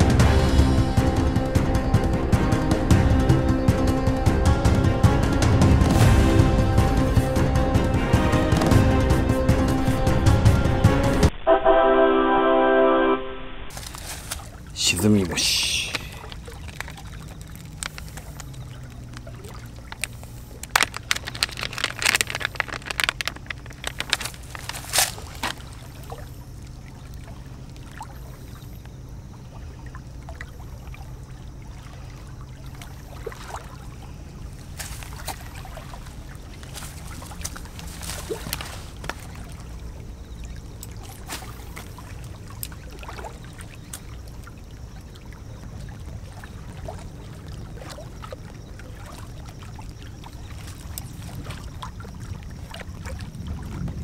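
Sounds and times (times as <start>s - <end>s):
low steady hum: 11.3s - 54.0s
light water at shore: 13.7s - 54.0s
plastic package crinkling: 15.9s - 25.9s.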